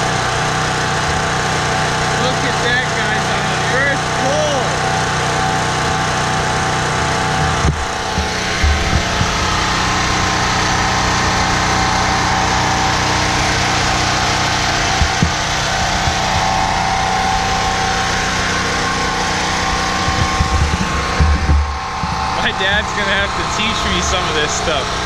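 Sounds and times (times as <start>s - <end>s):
generator engine running: 0.0s - 25.0s
low thumps: 7.3s - 10.9s, 14.6s - 24.2s.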